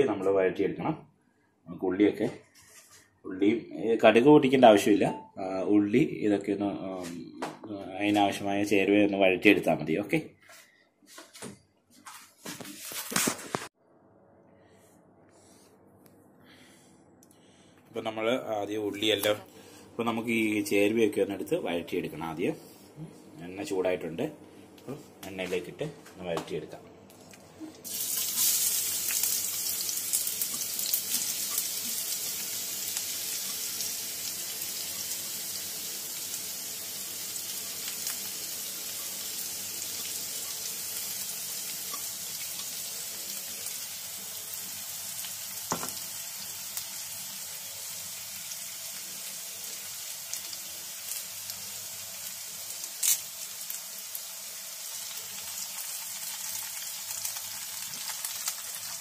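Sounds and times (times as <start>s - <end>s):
vegetables sizzling in hot oil: 27.8s - 59.0s.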